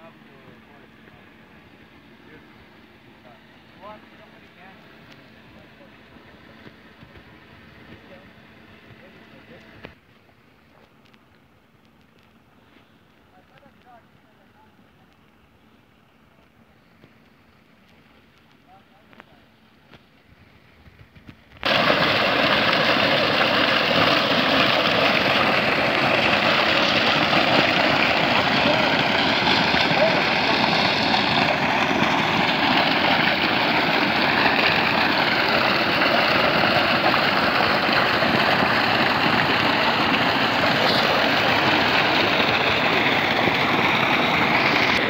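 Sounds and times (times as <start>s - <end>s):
water gushing and splashing: 21.6s - 45.0s.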